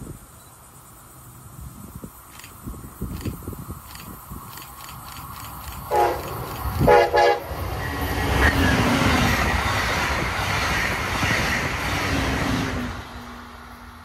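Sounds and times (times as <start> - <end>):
train wheels rolling on rails: 1.1 - 14.0
train horn blasts: 5.9 - 8.0.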